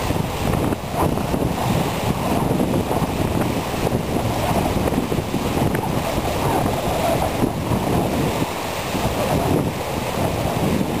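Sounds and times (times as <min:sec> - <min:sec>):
river waves lapping: 0:00.0 - 0:11.0
wind buffeting microphone: 0:00.0 - 0:11.0.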